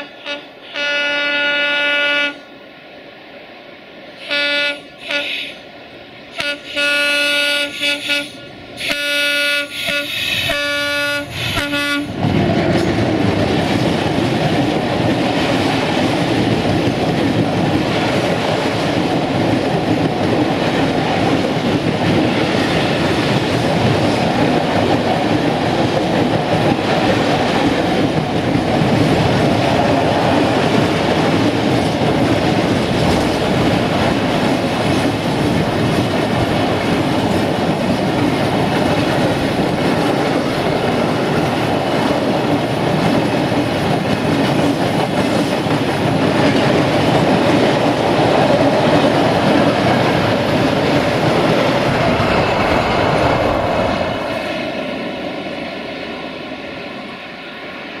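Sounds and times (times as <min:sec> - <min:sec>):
locomotive horn blasts: 0:00.0 - 0:02.4, 0:04.2 - 0:05.6, 0:06.4 - 0:12.2
train wheels clattering on rails: 0:09.7 - 0:55.2.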